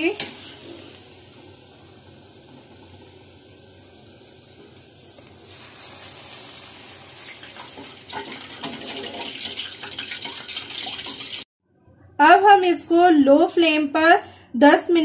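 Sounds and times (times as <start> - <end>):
sugar syrup bubbling and sizzling: 0.0 - 11.5.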